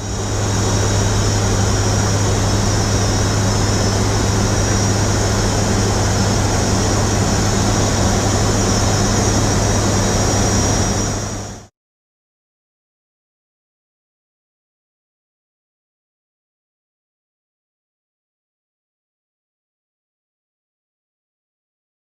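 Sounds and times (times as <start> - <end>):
high engine whine: 0.0 - 11.7
turboprop engines droning: 0.0 - 11.7.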